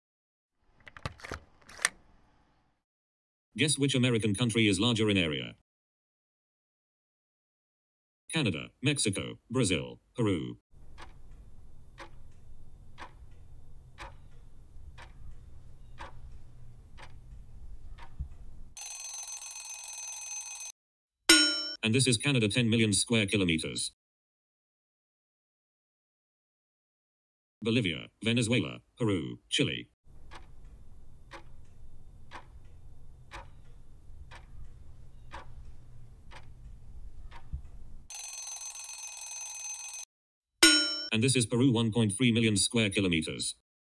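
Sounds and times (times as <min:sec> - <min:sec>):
clock ticking: 0:10.8 - 0:19.5, 0:30.1 - 0:38.8
ringing alarm: 0:18.8 - 0:20.7, 0:38.1 - 0:41.1.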